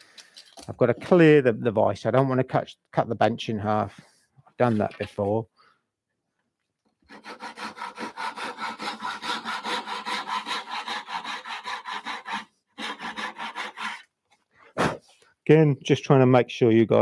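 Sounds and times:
hand saw cutting wood: 7.0s - 14.1s.

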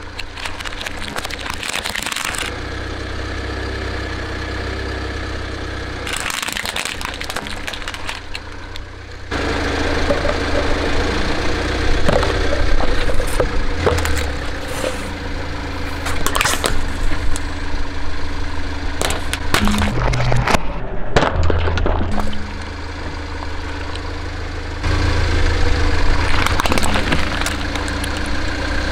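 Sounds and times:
plastic cracking and snapping: 0.0s - 2.5s, 6.1s - 8.8s, 26.2s - 28.4s
car engine running slowly: 0.0s - 20.6s, 21.2s - 28.9s.

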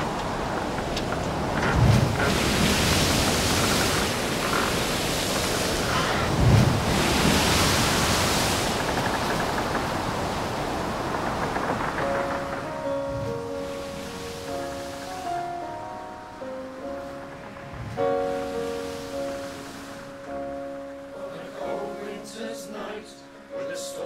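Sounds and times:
surf breaking on rocky shore: 0.0s - 15.4s.

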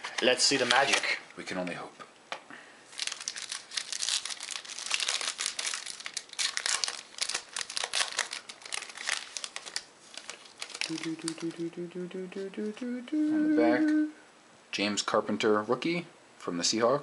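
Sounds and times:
foil wrapper crinkling: 0.1s - 1.2s, 2.9s - 11.7s.

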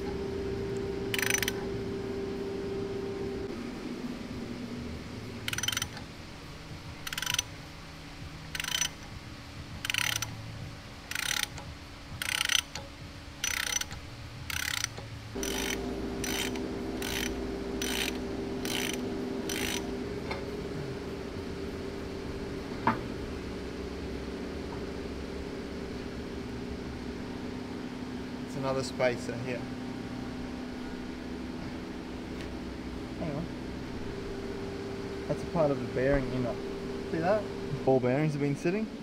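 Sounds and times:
ratchet wrench clicking: 1.1s - 1.6s, 5.5s - 6.0s, 7.0s - 7.6s, 8.5s - 9.1s, 9.8s - 10.4s, 11.0s - 19.8s.

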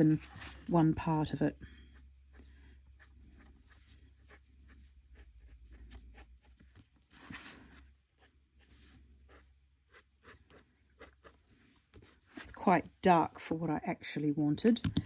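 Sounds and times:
marker scratching on paper: 2.4s - 7.5s.

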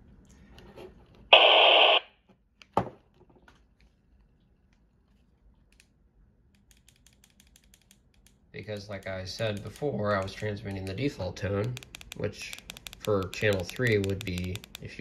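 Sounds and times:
walkie-talkie static burst: 1.3s - 2.0s.

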